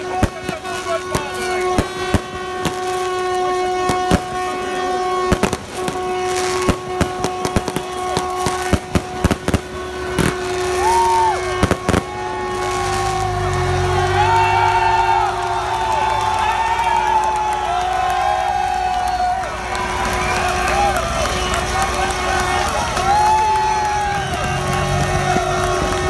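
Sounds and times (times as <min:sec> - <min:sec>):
horn holding a steady note: 0:00.0 - 0:18.0
firecrackers cracking: 0:00.0 - 0:26.0
short gliding whoops: 0:10.6 - 0:26.0.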